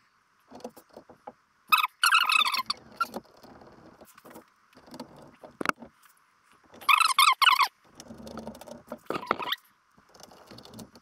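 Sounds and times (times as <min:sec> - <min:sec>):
high squeak: 0:01.7 - 0:03.2, 0:06.8 - 0:07.7, 0:09.1 - 0:09.6.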